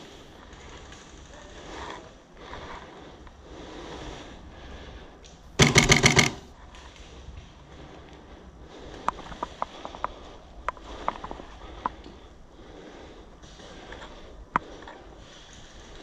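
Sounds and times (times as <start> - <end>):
automatic airsoft gunfire: 5.6 - 6.5.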